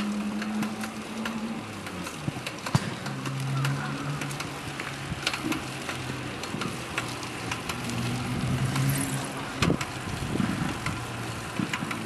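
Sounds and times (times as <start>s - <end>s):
low drone: 0.0s - 6.6s
bicycle clicking: 0.0s - 12.0s.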